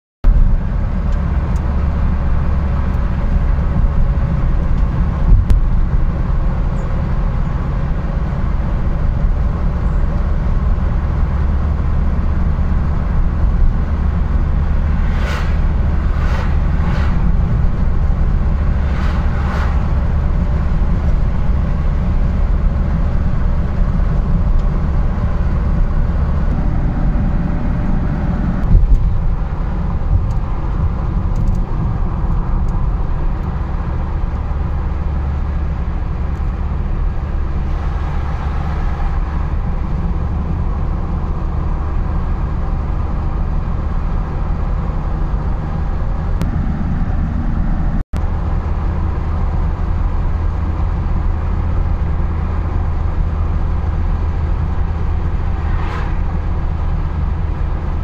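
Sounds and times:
car engine and tyres rumble: 0:00.2 - 0:58.0
vehicles whooshing past: 0:10.5 - 0:33.0, 0:33.8 - 0:42.5, 0:52.2 - 0:58.0.

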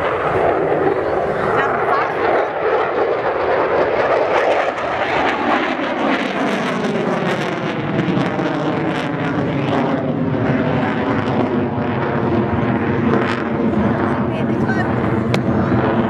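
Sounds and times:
fighter jet on afterburner: 0:00.0 - 0:16.0.

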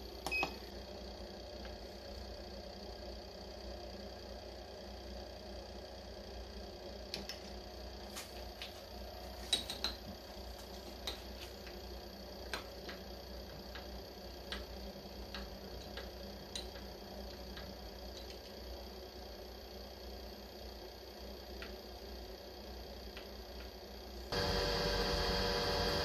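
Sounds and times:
milling machine motor humming: 0:24.3 - 0:26.0.

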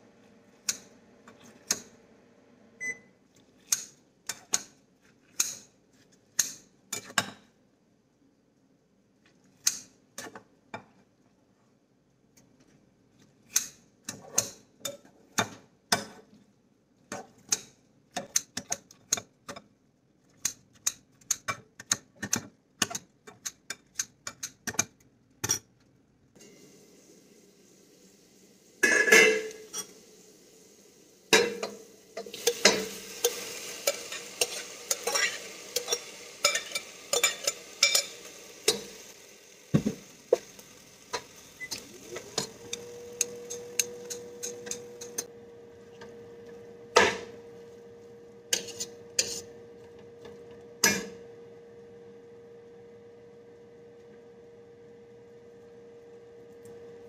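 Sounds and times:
oil sizzling in a pot: 0:26.4 - 0:53.1
metal spatula scraping a pot: 0:31.4 - 0:39.1, 0:48.5 - 0:49.6.

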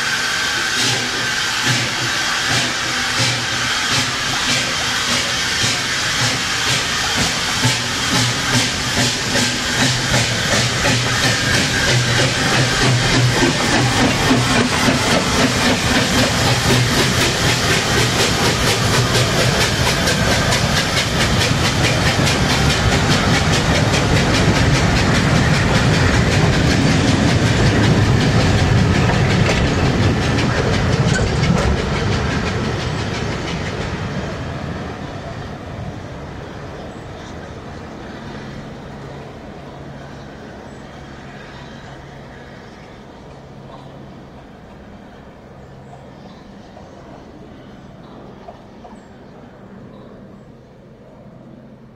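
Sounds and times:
steam locomotive exhaust and wheels: 0:00.0 - 0:51.9.

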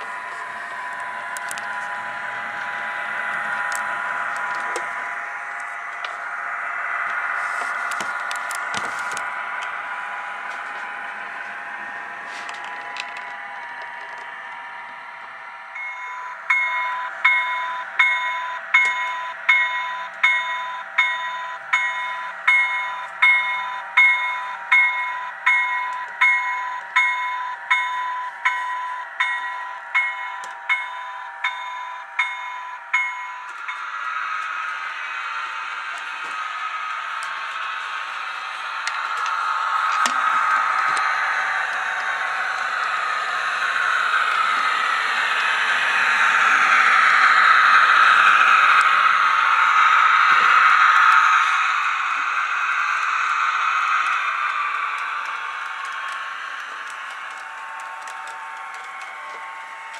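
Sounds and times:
locomotive bell ringing: 0:15.7 - 0:59.9.

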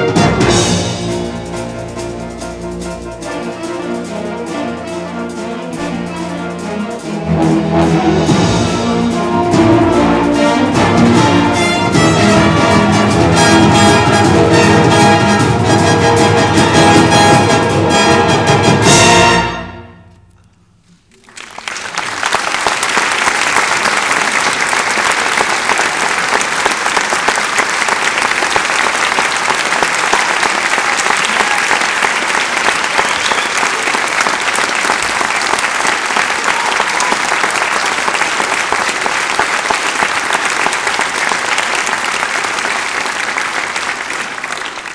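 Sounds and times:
audience applause: 0:21.0 - 0:44.9.

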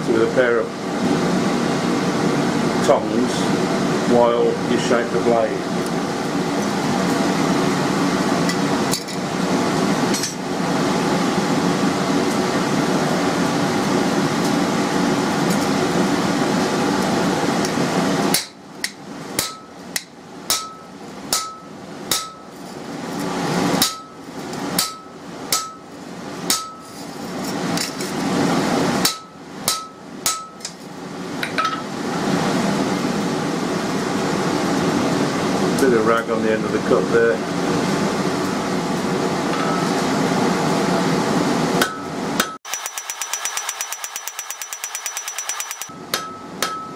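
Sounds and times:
hammer striking metal on anvil: 0:19.4 - 0:22.5, 0:23.8 - 0:24.2, 0:24.8 - 0:25.9, 0:26.5 - 0:26.8, 0:29.0 - 0:30.8, 0:41.8 - 0:42.6, 0:44.2 - 0:46.9.

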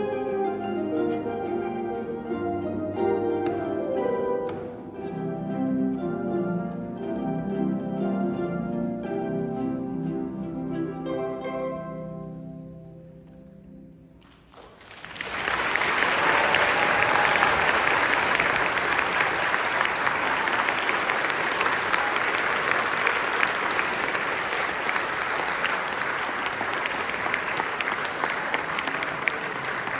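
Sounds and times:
audience applauding: 0:14.2 - 0:29.9.

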